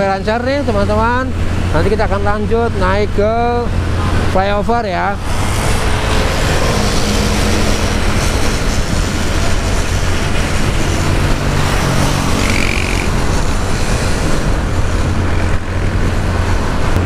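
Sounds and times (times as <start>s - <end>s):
wind rush on microphone: 0.0s - 17.0s
motorcycle engine: 3.7s - 17.0s.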